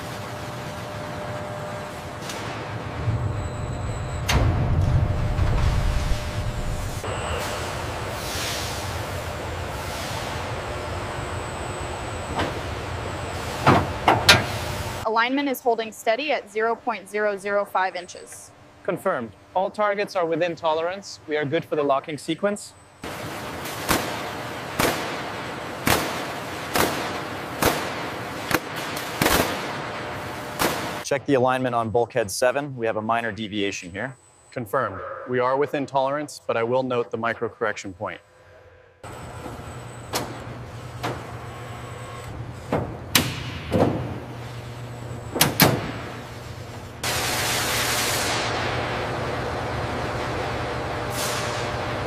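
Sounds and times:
machinery low hum: 0.0 - 52.0
loud hiss: 5.9 - 9.2
machine hiss: 5.9 - 10.6, 47.0 - 48.7, 51.1 - 51.8.

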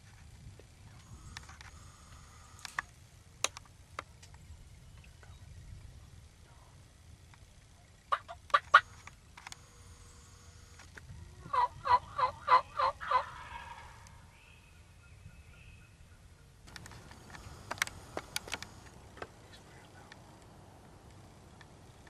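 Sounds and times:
turkey yelping: 8.1 - 9.0, 11.4 - 14.4.

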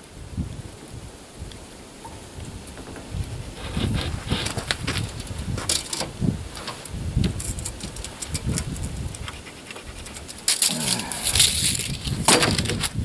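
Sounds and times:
pencil clicks and scrapes on wood: 7.4 - 12.0.

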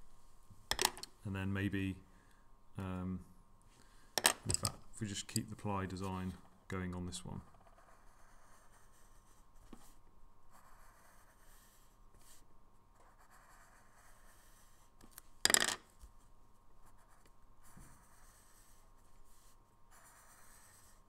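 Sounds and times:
pen scratching on paper: 7.5 - 12.4, 13.0 - 14.9, 16.8 - 21.0.

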